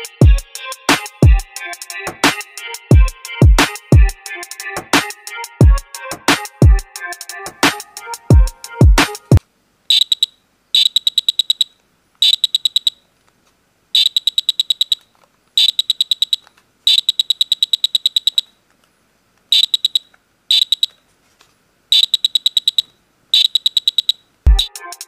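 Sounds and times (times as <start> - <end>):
music: 0.0 - 9.4, 24.5 - 25.0
high-pitched buzzer beeps: 9.9 - 13.0, 14.0 - 15.0, 15.6 - 18.5, 19.5 - 21.0, 21.9 - 24.7.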